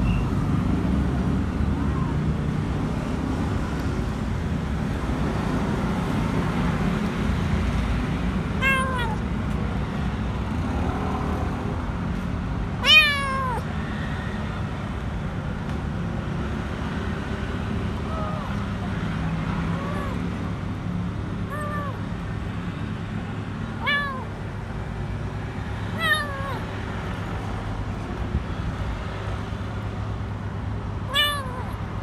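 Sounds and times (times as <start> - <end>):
kitten meowing: 8.6 - 9.2, 12.8 - 13.7, 18.0 - 18.6, 19.7 - 20.3, 21.4 - 22.0, 23.8 - 24.4, 25.9 - 26.7, 31.0 - 31.8.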